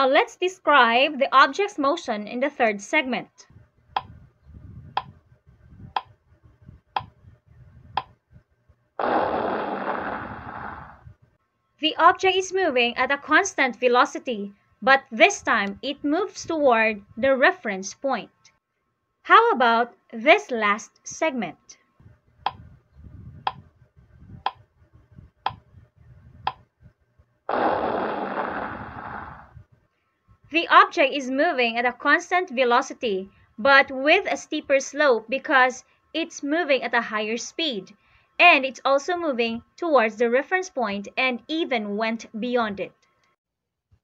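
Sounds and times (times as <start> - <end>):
loud noisy burst: 9.0 - 11.0, 27.5 - 29.5.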